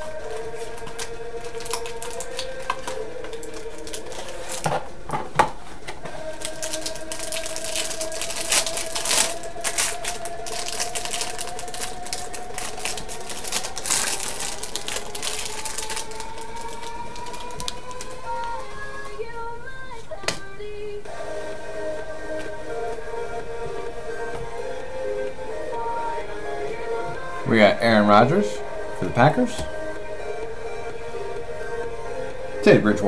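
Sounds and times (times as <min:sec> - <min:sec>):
foil wrapper crinkling: 0:00.0 - 0:04.8, 0:06.1 - 0:19.1.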